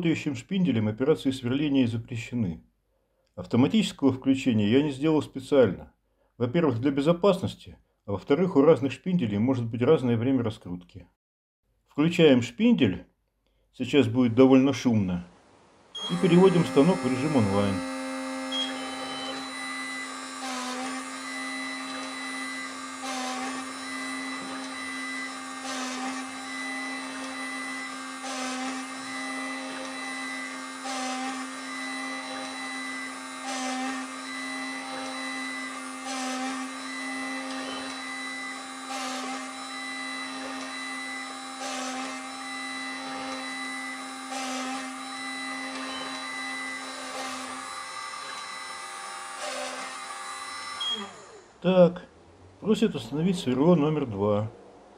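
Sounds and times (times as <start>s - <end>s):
engraver spindle whining: 16.0s - 51.6s
stepper motor move: 16.0s - 51.6s.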